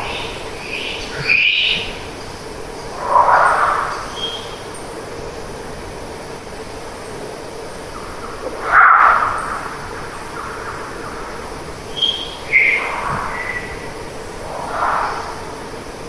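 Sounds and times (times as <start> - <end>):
steady hiss: 0.0 - 16.0
animal calls: 3.0 - 4.6, 8.1 - 15.7.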